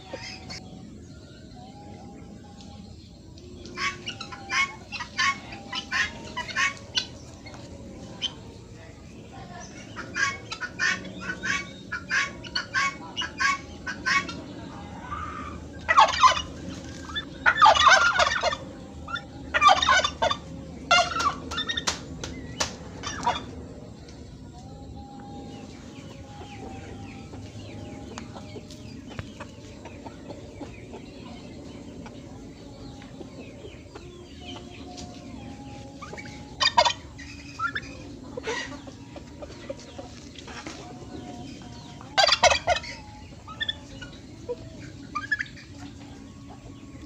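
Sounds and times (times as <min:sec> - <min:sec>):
poultry calls: 0:00.0 - 0:00.8, 0:02.2 - 0:08.6, 0:09.3 - 0:22.0, 0:22.6 - 0:23.6, 0:25.5 - 0:47.0
poultry clucking: 0:00.0 - 0:47.0.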